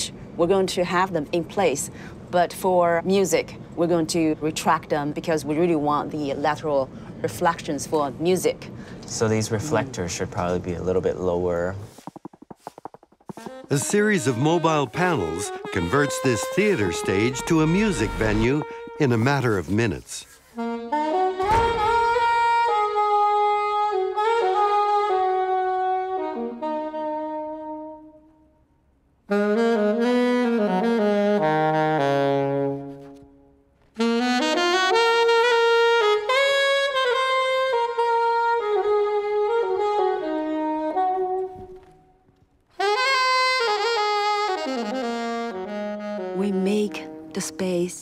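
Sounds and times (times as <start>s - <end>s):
saxophone melody: 11.8s - 28.5s, 29.3s - 48.0s.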